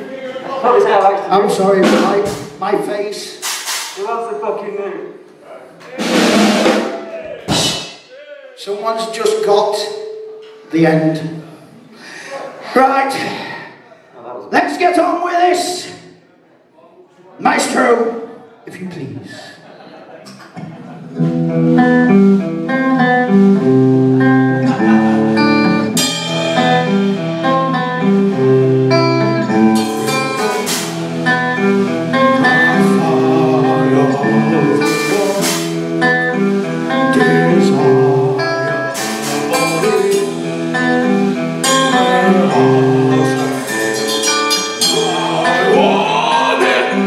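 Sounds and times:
rock band playing: 1.4 - 2.7, 6.0 - 8.0, 21.2 - 47.0
person singing: 29.3 - 47.0
cymbal crashes: 41.6 - 45.8.

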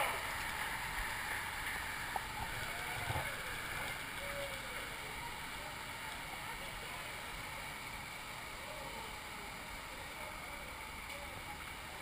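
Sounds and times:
water rushing and lapping: 0.0 - 8.4
faint voices: 2.2 - 12.0.

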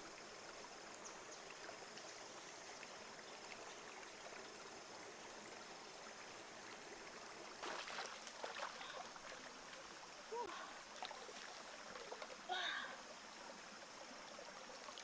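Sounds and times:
stream flowing over rocks: 0.0 - 15.0
water splashing into stream: 7.4 - 10.2, 10.8 - 12.5, 14.3 - 15.0.

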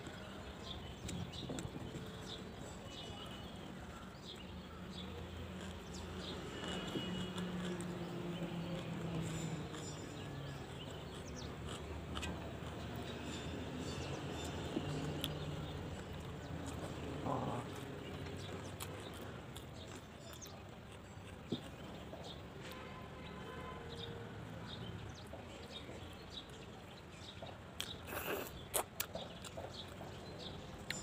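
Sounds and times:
person chewing: 4.7 - 13.4, 14.4 - 22.3, 27.8 - 30.0.

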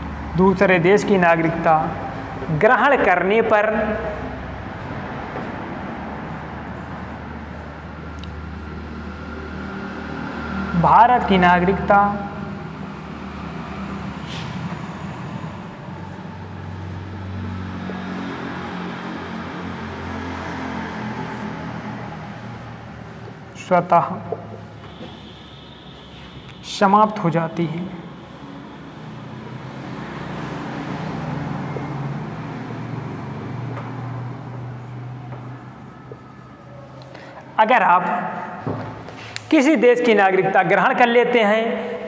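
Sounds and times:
passing vehicle engine hum: 0.0 - 39.5.

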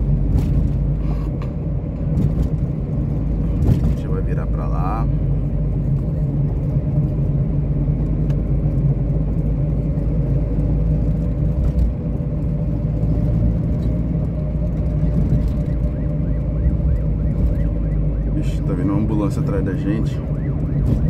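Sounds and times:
car engine and road drone: 0.0 - 21.0.

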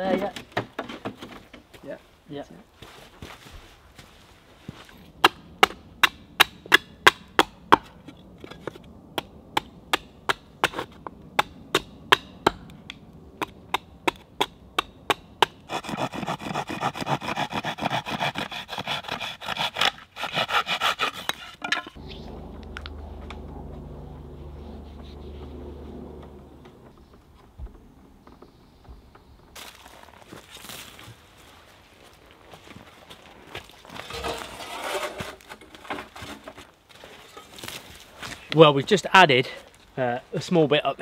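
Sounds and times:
sharp wooden knocks: 5.2 - 15.6
rough wood-working sound: 33.9 - 37.8.

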